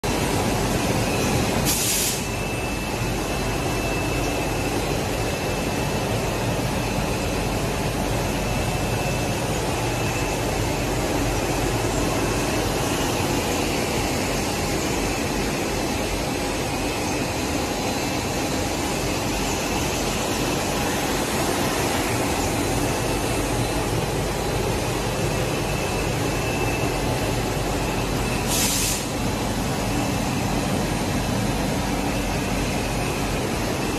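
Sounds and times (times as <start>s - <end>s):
factory machinery hum: 0.0s - 33.9s
short hisses: 28.5s - 29.1s.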